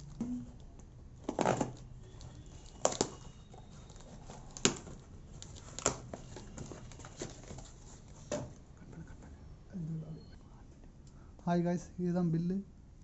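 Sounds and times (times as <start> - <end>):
tape and cardboard snapping: 2.7 - 3.2, 4.3 - 5.0.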